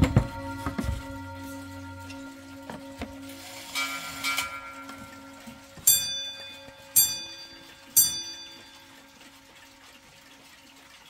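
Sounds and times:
mantel clock striking: 3.0s - 9.0s.

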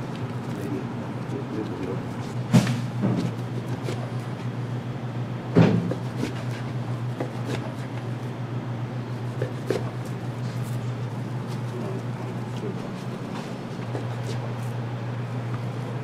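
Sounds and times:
steady low hum: 0.0s - 16.0s
knife scoring raw meat: 1.6s - 4.6s, 5.6s - 8.4s, 9.0s - 16.0s.

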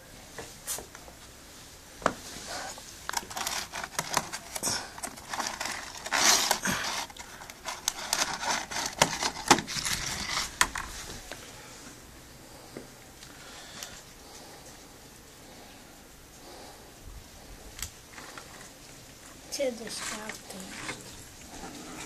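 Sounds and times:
plastic tub clicking and crinkling: 3.1s - 10.9s.

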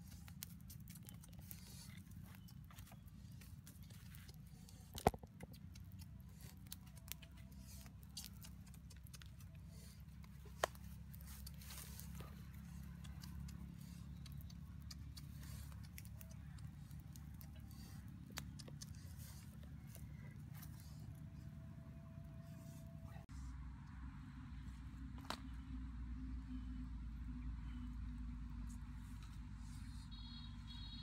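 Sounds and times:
fire crackling and popping: 0.0s - 19.0s
low fire rumble: 0.0s - 29.8s.

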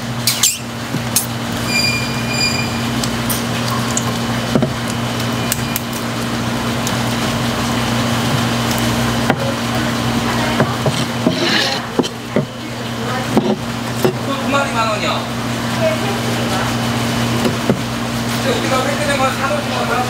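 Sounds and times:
knife on plastic cutting board: 10.8s - 12.2s.

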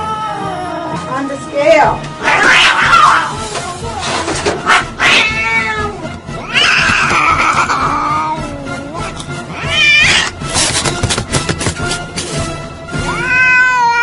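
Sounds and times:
cat yowling: 2.2s - 3.4s, 4.6s - 10.4s, 13.0s - 14.0s.

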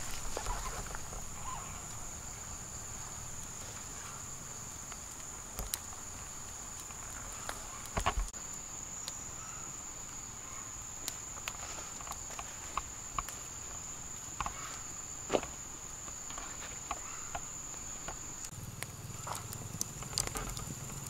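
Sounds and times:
sharp clicks and snaps: 16.3s - 21.0s.

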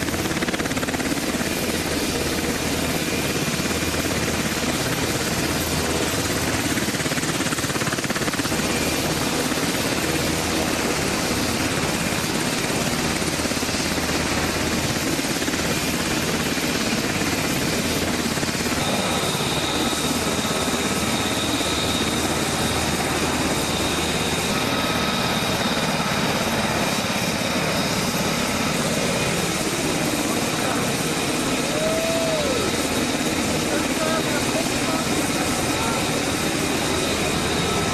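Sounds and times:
helicopter rotor and engine noise: 0.0s - 37.9s.

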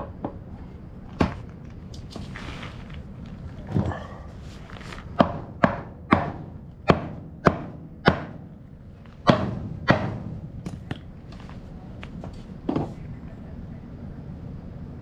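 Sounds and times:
mallet striking wooden board: 5.2s - 8.4s, 9.2s - 11.0s.

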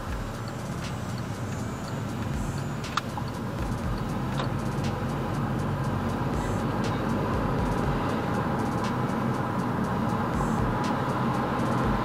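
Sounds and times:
car engine and road hum: 0.0s - 12.0s
sharp click: 2.8s - 5.1s.

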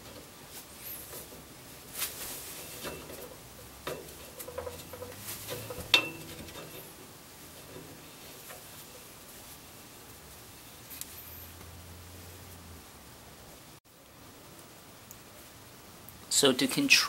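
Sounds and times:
metal pipe scraping and clicking: 2.5s - 9.1s.

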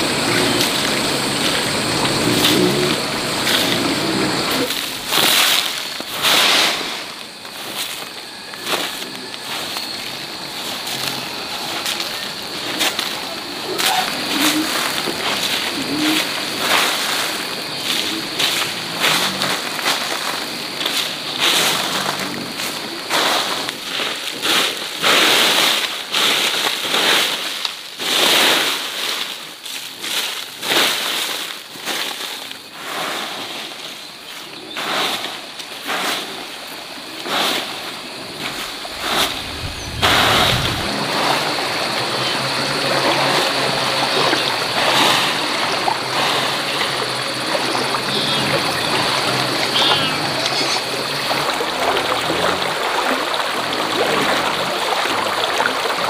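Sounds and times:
water splashing: 0.0s - 24.5s, 37.9s - 56.0s
running water rushing: 0.0s - 26.8s, 36.7s - 56.0s.

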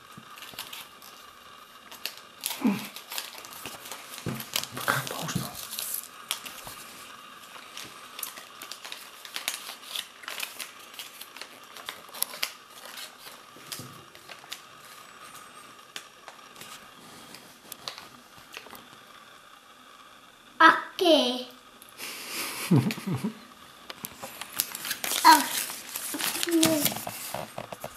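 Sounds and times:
paper rustling and crinkling: 0.4s - 1.2s, 1.9s - 18.9s, 24.0s - 27.9s.

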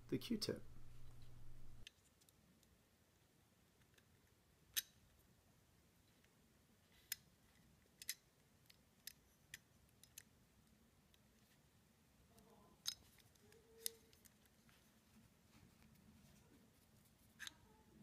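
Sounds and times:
small metal parts clicking: 7.9s - 10.3s.

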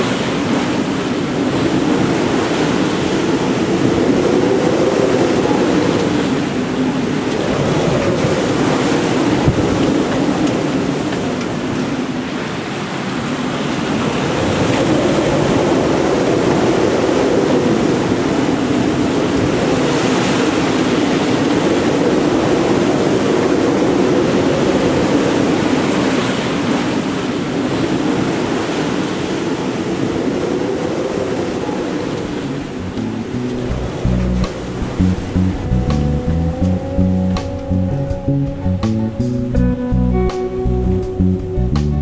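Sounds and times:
wind buffeting microphone: 0.0s - 12.3s, 13.6s - 42.0s
wind and sea rushing: 0.0s - 41.8s.

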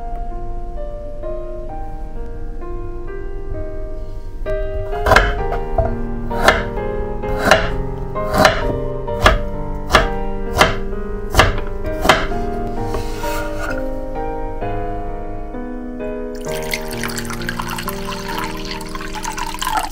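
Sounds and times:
background music: 0.0s - 19.9s
knife chopping on wooden board: 5.0s - 6.7s, 7.3s - 13.1s.

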